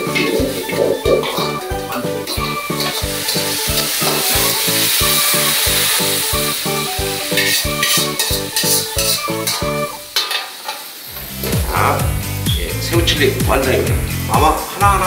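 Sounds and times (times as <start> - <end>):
background music with beat: 0.0 - 10.2, 11.1 - 15.0
ladle scraping wok: 0.0 - 11.6
sauce sizzling in wok: 0.0 - 12.9, 13.6 - 14.8.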